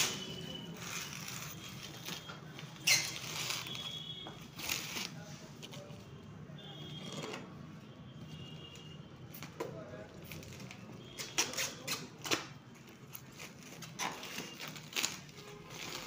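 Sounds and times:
plastic film crinkling: 0.0s - 5.9s, 10.0s - 16.0s.

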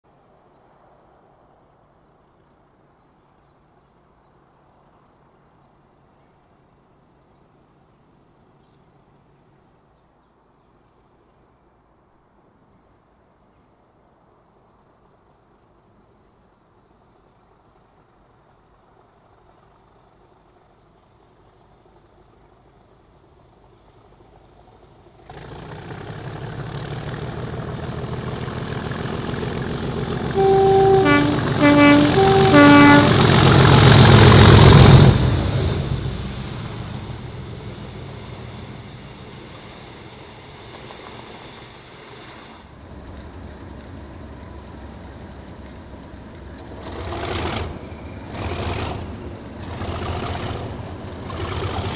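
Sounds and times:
diesel locomotive engine growling: 16.3s - 51.9s
two-tone train horn blasts: 30.0s - 35.5s.

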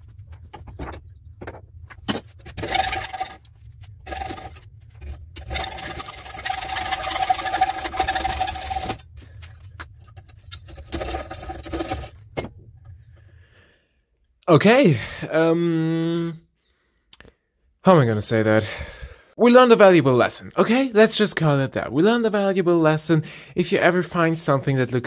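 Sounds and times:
steady ringing tone: 2.5s - 13.0s
hacksaw rasping through metal: 5.4s - 9.0s.

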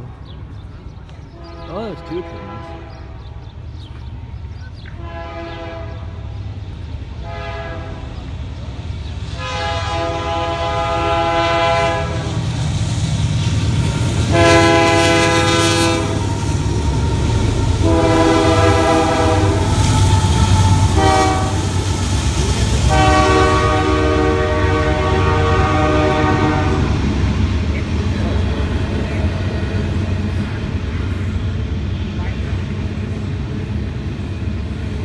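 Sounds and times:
low train rumble: 0.0s - 35.0s
locomotive air horn blasts: 1.4s - 3.2s, 5.0s - 6.3s, 7.2s - 8.2s, 9.3s - 12.4s, 14.2s - 27.0s.

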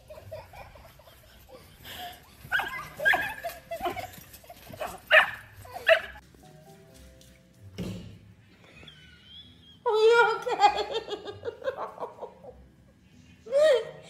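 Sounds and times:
dog barking: 2.5s - 3.4s, 4.8s - 6.2s.

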